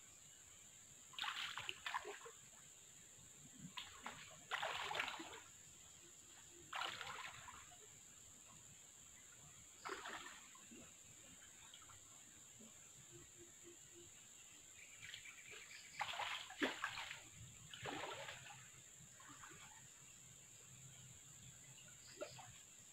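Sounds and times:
legs wading through river water: 1.1 - 2.6, 3.6 - 8.0, 9.7 - 12.0, 14.8 - 20.4.

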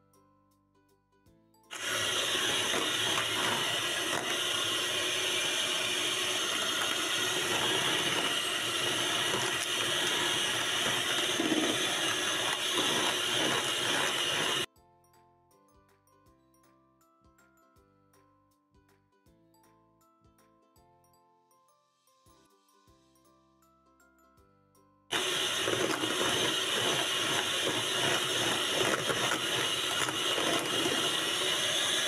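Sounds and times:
soft background music: 0.0 - 1.7, 14.7 - 25.1
electric hand mixer whipping cream: 1.7 - 14.7, 25.1 - 32.0.

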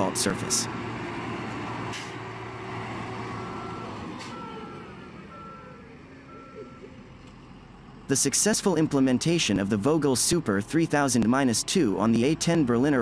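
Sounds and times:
paver engines running: 0.0 - 13.0
reversing alarm beeping: 3.4 - 7.0.

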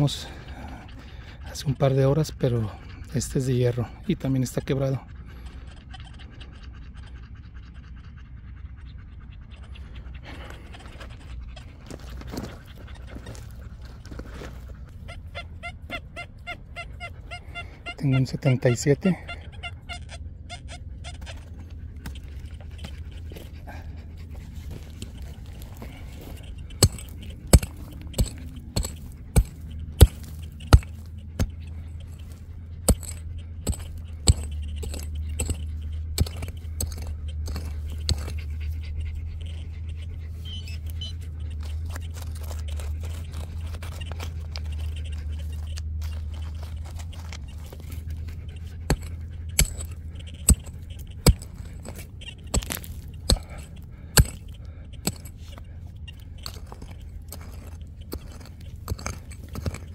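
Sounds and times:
steady low rumble: 19.2 - 59.9
scraping and clicks: 24.5 - 38.6, 40.8 - 59.9
digging tool striking hard ground: 26.7 - 38.4, 48.8 - 55.6, 56.4 - 59.9.

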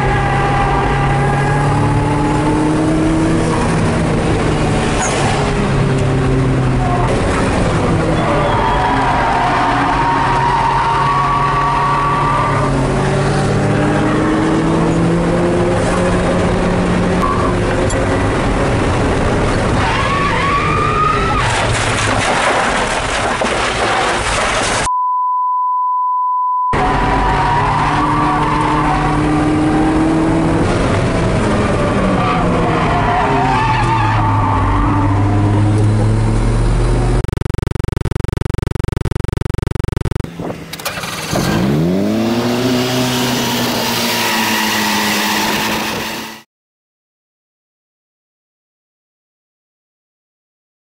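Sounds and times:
car engine revving hard: 0.0 - 8.1, 11.4 - 17.2, 26.8 - 33.1, 40.4 - 46.4
steady high bleep tone: 24.9 - 26.8, 37.2 - 40.3.

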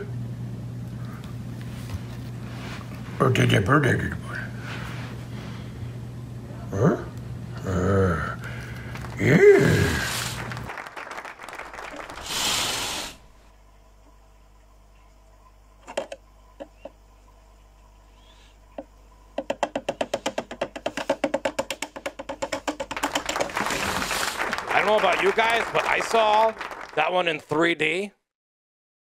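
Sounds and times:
fast rhythmic clicking: 19.4 - 23.6.

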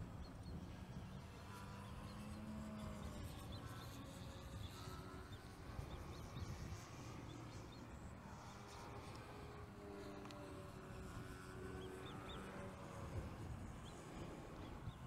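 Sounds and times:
model airplane motor hum: 0.0 - 15.0
small birds chirping: 0.2 - 9.2, 11.7 - 12.8.

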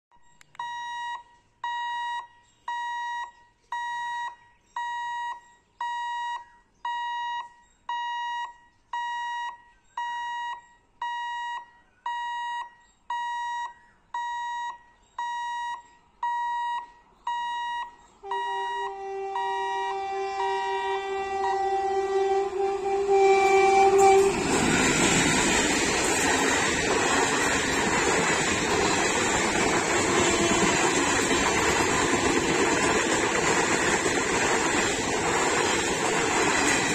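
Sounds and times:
level crossing warning beeps: 0.2 - 22.1
two-tone train horn: 18.2 - 25.6, 29.8 - 33.1.

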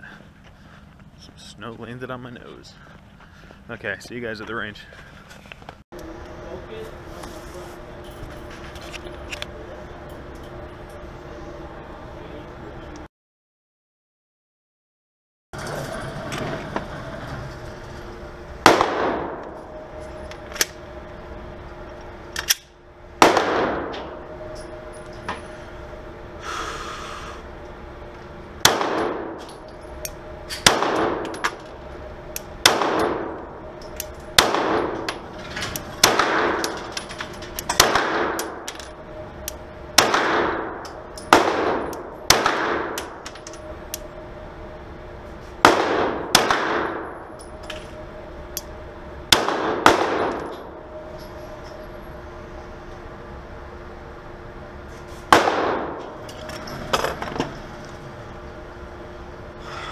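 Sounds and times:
steady hum: 0.0 - 13.1, 15.6 - 59.9
pistol shots ringing indoors: 18.6 - 20.8, 23.2 - 25.0, 28.6 - 44.2, 45.6 - 47.8, 49.2 - 51.4, 55.3 - 56.2.

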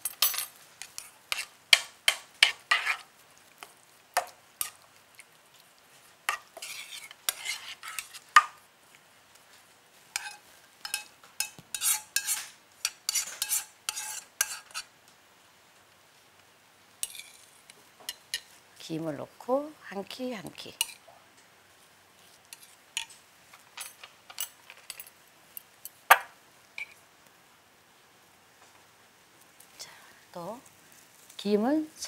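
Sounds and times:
spoon clinking and scraping pan: 0.1 - 3.1, 6.3 - 8.6, 10.1 - 14.9, 17.0 - 18.6, 20.8 - 21.0, 22.5 - 27.0.

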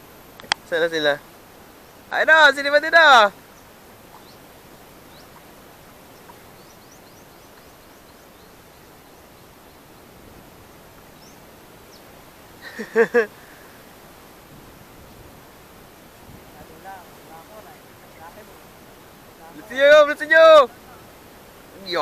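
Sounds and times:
open-air hiss over river: 0.0 - 22.0
faint bird chirps: 3.4 - 10.2, 11.0 - 13.0.

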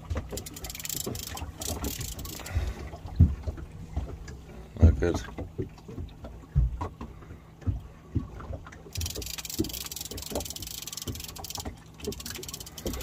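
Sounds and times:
water slapping against boat hull: 0.0 - 13.0
fishing reel clicking: 0.2 - 2.6, 8.9 - 13.0.

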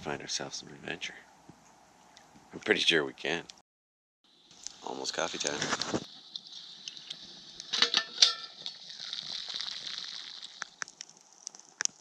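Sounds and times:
campfire crackling and popping: 4.3 - 12.0
metal cookware clanking: 7.7 - 8.8.

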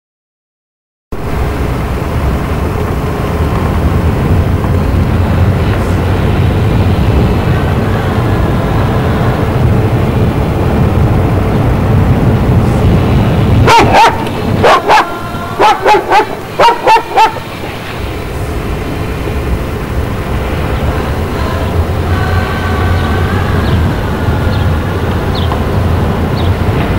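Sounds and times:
vehicle engine rumble: 1.1 - 26.9
dog barking: 13.6 - 17.5.

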